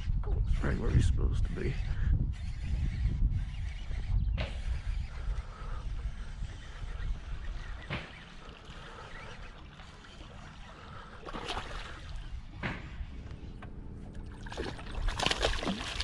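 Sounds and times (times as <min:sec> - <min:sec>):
lure splashing on water: 0:08.0 - 0:12.4, 0:14.2 - 0:16.0
fish thrashing and splashing: 0:08.5 - 0:12.4, 0:14.2 - 0:16.0.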